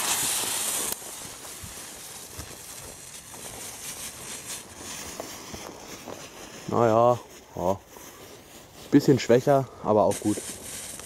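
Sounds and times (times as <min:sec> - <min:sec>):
fuse hissing and spitting: 0:00.0 - 0:06.9, 0:09.4 - 0:11.0
faint crackle: 0:00.0 - 0:11.0
firework burning with hiss: 0:00.0 - 0:11.0.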